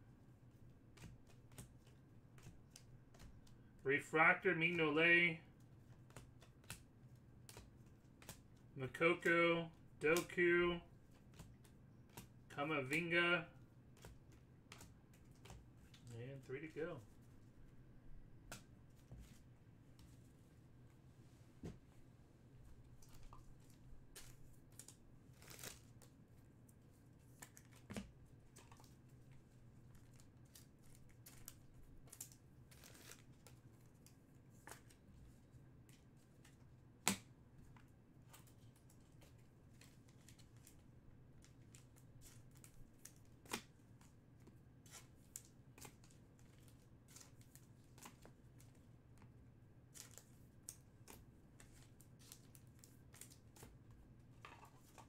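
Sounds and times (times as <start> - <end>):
trading cards rustling: 22.9 - 26.1.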